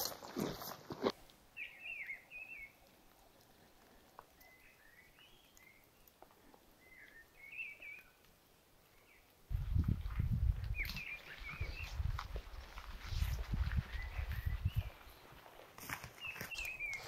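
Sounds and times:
footsteps on wet gravel: 0:00.0 - 0:01.2, 0:09.5 - 0:17.0
bird chirping: 0:01.6 - 0:06.2, 0:06.8 - 0:08.2, 0:10.7 - 0:12.1, 0:16.2 - 0:17.0.

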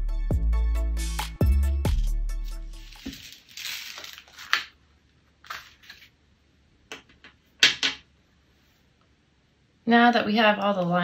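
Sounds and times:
paper sheets handled: 0:02.4 - 0:04.8, 0:05.4 - 0:06.2.

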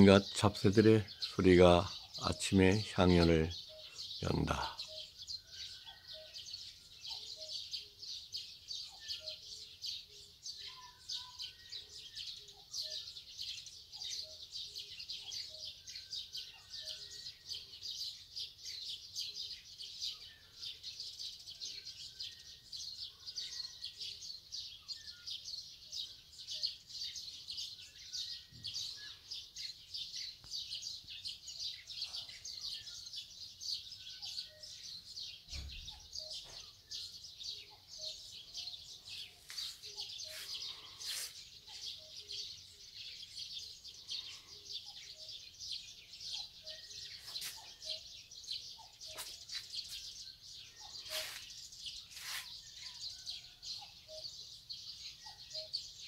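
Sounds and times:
small birds chirping: 0:00.0 - 0:56.0
lower bird calls: 0:27.8 - 0:54.4.

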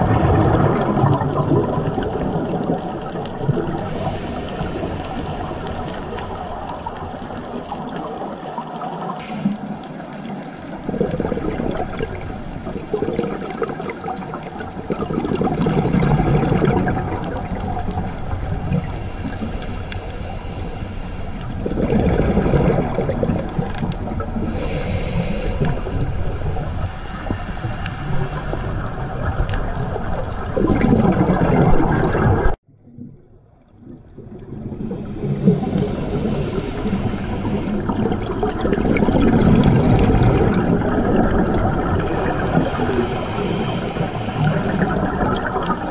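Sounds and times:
exhalation bubbles underwater: 0:00.0 - 0:19.6, 0:21.4 - 0:45.9
regulator inhalation hiss: 0:03.7 - 0:07.6, 0:09.2 - 0:09.8, 0:18.6 - 0:21.6, 0:24.4 - 0:27.5, 0:34.8 - 0:38.3, 0:42.1 - 0:45.9.

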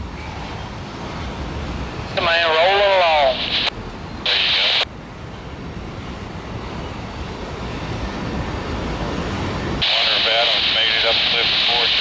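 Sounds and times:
train wheels rumbling on rails: 0:05.0 - 0:11.9.

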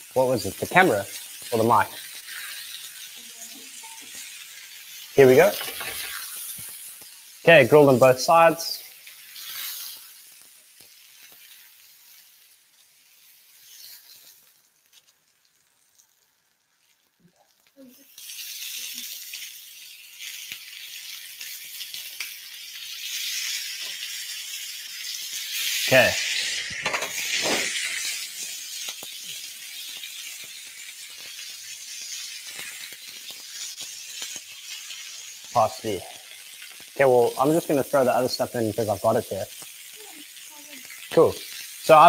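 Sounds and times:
meat sizzling on griddle: 0:00.0 - 0:42.0
scrape on griddle pan: 0:05.6 - 0:07.0, 0:09.2 - 0:10.4, 0:13.2 - 0:15.1, 0:26.4 - 0:28.5.

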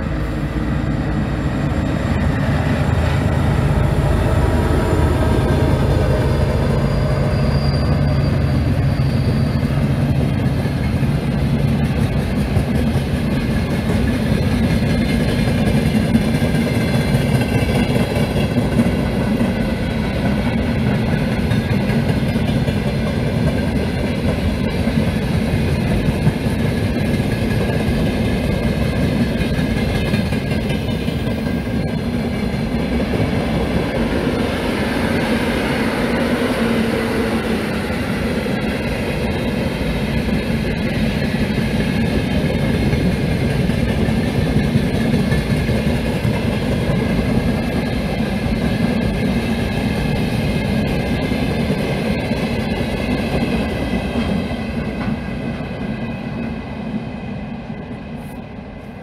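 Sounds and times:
freight train wheels rumbling: 0:00.0 - 0:59.0.

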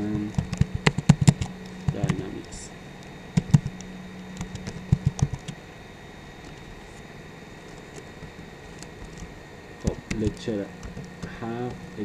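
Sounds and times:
steady low hum: 0:00.0 - 0:12.0
keyboard key clicks: 0:00.3 - 0:02.2, 0:04.4 - 0:05.5.

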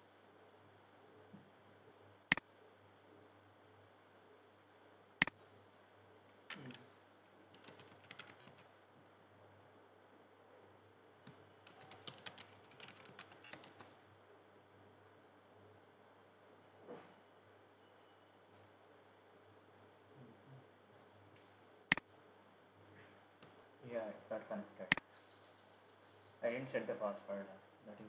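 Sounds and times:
computer keyboard typing: 0:07.5 - 0:08.7, 0:11.6 - 0:14.0.

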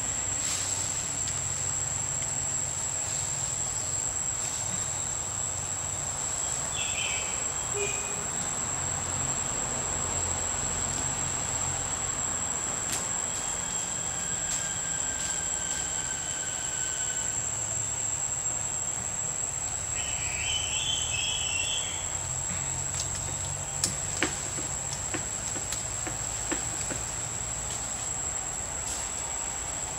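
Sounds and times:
insect chirps: 0:00.0 - 0:29.9
insects droning: 0:00.0 - 0:29.9.

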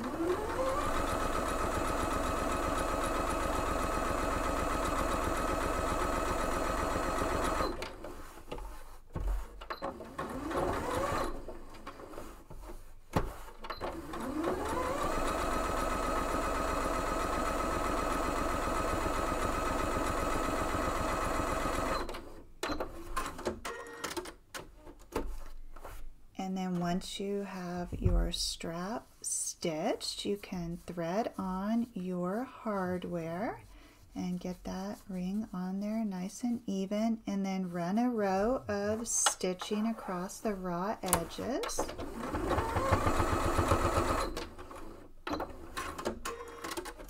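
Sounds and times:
sewing machine stitching: 0:00.0 - 0:24.4, 0:37.8 - 0:47.0.

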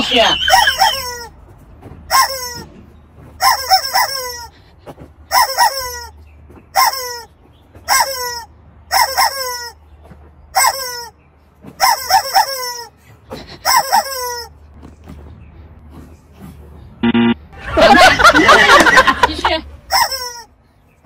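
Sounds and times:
rubber chicken toy squawking: 0:00.0 - 0:01.4, 0:02.1 - 0:02.7, 0:03.4 - 0:04.6, 0:05.3 - 0:06.2, 0:06.8 - 0:07.3, 0:07.9 - 0:09.8, 0:10.6 - 0:14.6, 0:19.9 - 0:20.5.

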